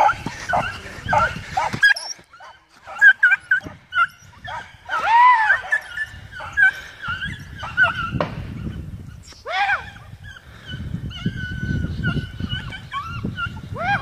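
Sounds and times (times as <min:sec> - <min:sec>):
dog yelping: 0:00.0 - 0:08.2, 0:11.1 - 0:14.0.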